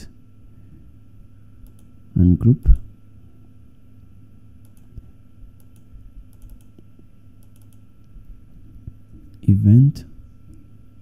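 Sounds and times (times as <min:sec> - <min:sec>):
steady low hum: 0:00.0 - 0:11.0
mouse and keyboard clicks: 0:04.6 - 0:05.0, 0:05.6 - 0:07.8.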